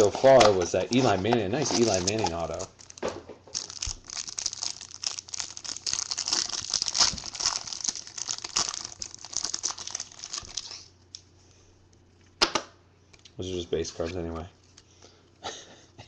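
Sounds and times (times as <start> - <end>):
plastic wrapping crinkling: 0.0 - 10.9.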